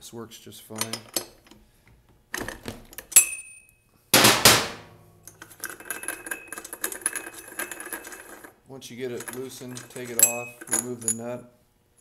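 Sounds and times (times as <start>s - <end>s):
wrench clanking on metal nut: 0.8s - 1.6s, 9.1s - 11.3s
metallic clinking and rattling: 5.2s - 11.3s.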